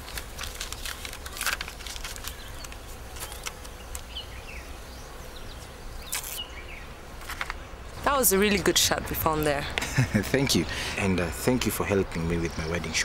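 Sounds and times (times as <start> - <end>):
tape ripping and rustling: 0.0 - 4.2, 6.0 - 6.4, 7.2 - 7.6
low outdoor hum: 0.0 - 13.0.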